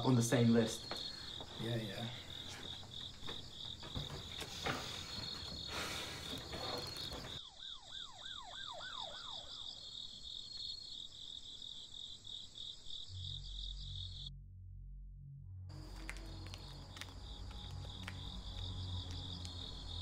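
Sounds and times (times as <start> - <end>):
crickets chirping: 0.0 - 14.3, 15.7 - 20.0
scuffing footsteps: 0.6 - 7.4, 15.7 - 19.6.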